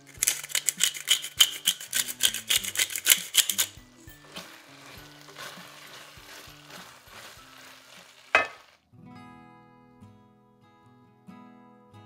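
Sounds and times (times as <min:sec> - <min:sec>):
filling crackling in pan: 0:00.0 - 0:08.8
background music: 0:00.0 - 0:12.0.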